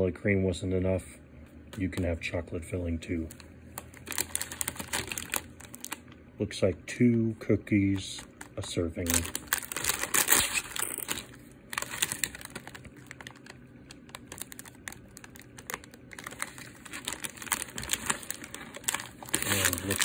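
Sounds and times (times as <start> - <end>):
plastic package crinkling: 3.1 - 6.2, 7.9 - 20.0.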